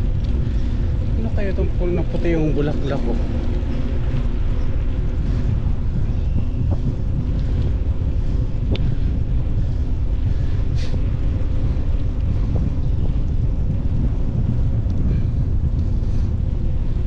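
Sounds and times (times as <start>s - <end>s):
wind buffeting microphone: 0.0s - 17.0s
faint ticks: 8.6s - 9.1s, 11.4s - 15.1s.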